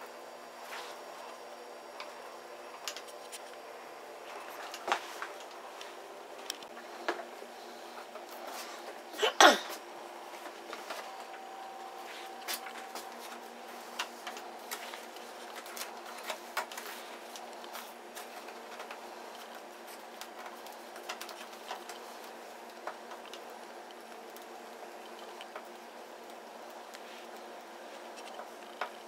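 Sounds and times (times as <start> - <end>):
faint steady hum: 0.0 - 29.0
plastic film clicking and crackling: 12.4 - 29.0.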